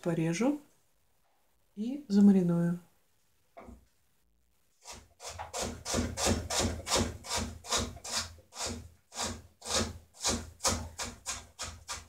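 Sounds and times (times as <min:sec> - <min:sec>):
knife chopping on wooden board: 0:05.2 - 0:12.0.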